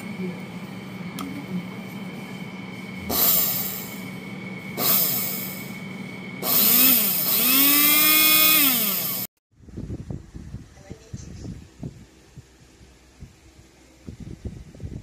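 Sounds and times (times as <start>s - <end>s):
coffee grinder motor whining: 3.0s - 9.3s.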